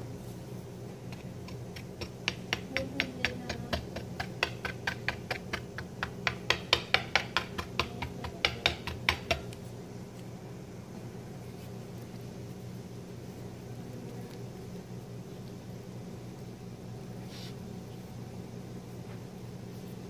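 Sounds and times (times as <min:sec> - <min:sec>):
steady low hum: 0:00.0 - 0:20.0
utensil tapping a container: 0:01.4 - 0:09.6.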